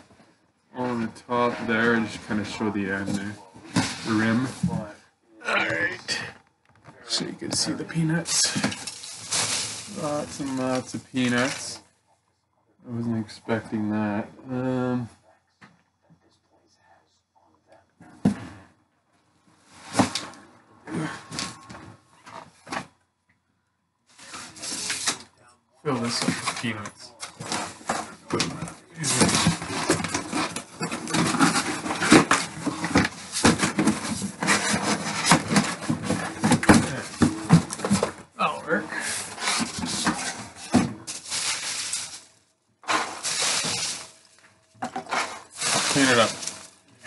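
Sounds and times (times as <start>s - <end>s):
cardboard and packing peanuts rustling: 0.8s - 4.9s, 7.1s - 11.8s, 24.1s - 25.3s, 25.9s - 47.0s
packing peanuts rustling and crunching: 8.2s - 11.8s, 41.0s - 44.4s, 45.1s - 46.9s.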